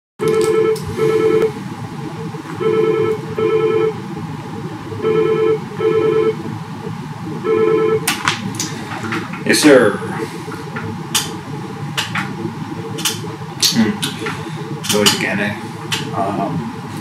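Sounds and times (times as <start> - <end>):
desk phone ringing: 0.2 - 1.6, 2.6 - 4.0, 5.0 - 6.4, 7.4 - 8.1.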